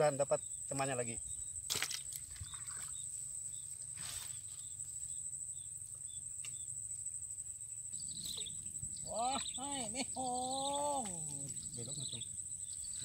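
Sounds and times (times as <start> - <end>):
high-pitched insect trill: 0.0 - 13.0.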